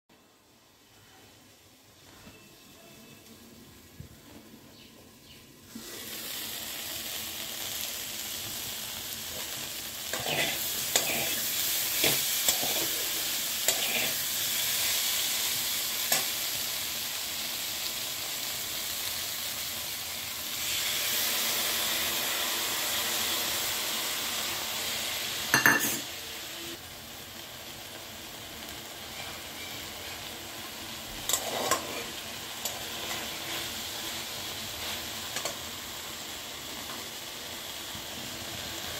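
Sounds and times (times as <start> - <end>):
vegetables sizzling in a frying pan: 3.2 - 38.9
metal spatula scraping a pan: 10.1 - 14.8, 29.0 - 30.4, 31.2 - 33.8.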